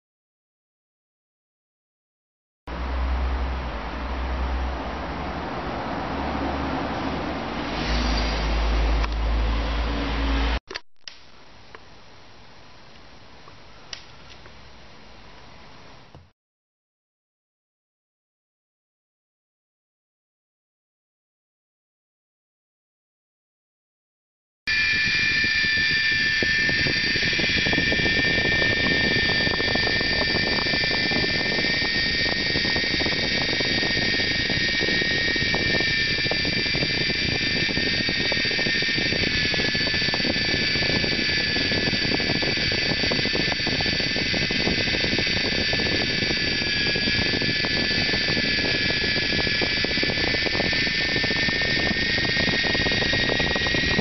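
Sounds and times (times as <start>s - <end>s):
small electric motor whine: 6.4s - 10.6s, 24.7s - 54.0s
rotor blades buzzing: 24.7s - 54.0s.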